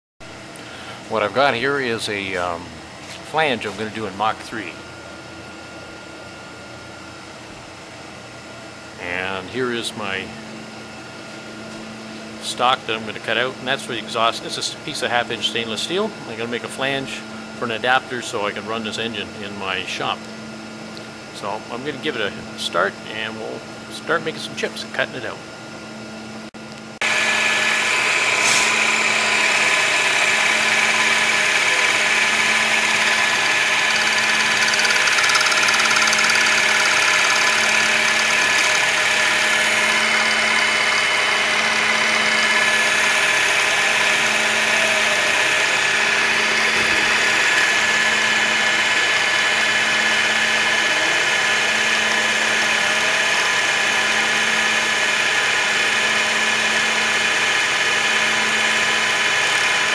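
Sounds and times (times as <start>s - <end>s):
milling machine cutting steel: 27.0s - 59.9s.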